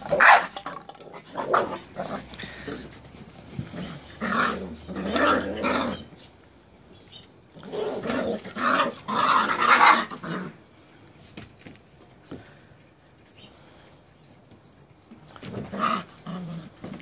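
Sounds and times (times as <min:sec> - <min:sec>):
puppies growling: 0:00.0 - 0:06.1, 0:07.6 - 0:10.7, 0:15.3 - 0:17.0.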